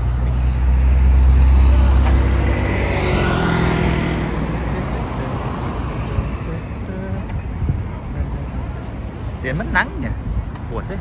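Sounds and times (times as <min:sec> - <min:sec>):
motor scooter passing: 0:00.0 - 0:07.0
car passing: 0:00.0 - 0:11.0.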